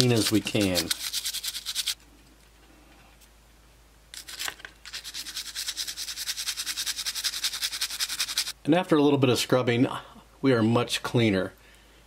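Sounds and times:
toothbrush scrubbing in soapy water: 0:00.0 - 0:02.0, 0:04.2 - 0:08.5.

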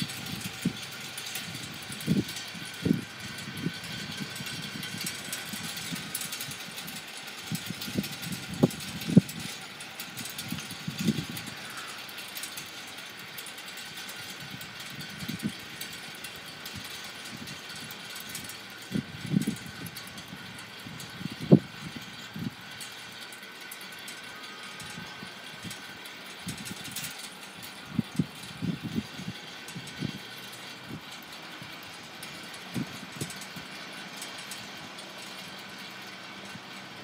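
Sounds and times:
gusty wind buffeting microphone: 0:00.0 - 0:12.2, 0:13.8 - 0:23.2, 0:24.3 - 0:37.0
steady outdoor hiss: 0:00.0 - 0:37.0.

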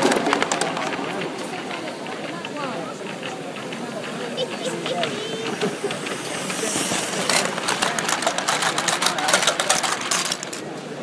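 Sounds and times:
train wheels clattering over rail joints: 0:00.0 - 0:11.0
steam hissing from locomotive: 0:02.0 - 0:10.6.

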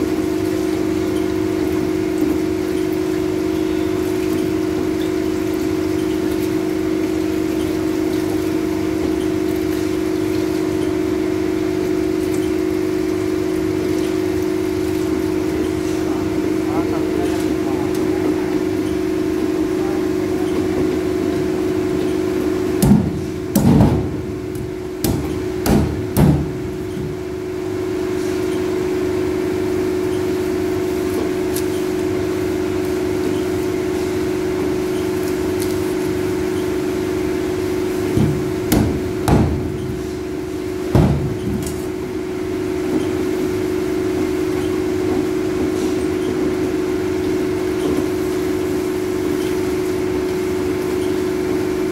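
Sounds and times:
machine hum: 0:00.0 - 0:51.9
mallet knocking cleaver thuds: 0:25.0 - 0:26.6.

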